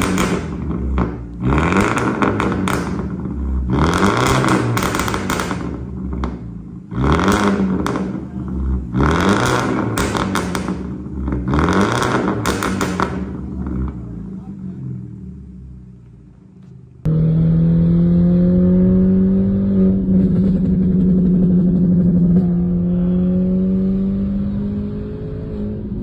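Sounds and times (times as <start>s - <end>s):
exhaust pops and crackles: 0.0s - 14.6s, 19.9s - 22.6s
car engine revving: 0.0s - 26.0s.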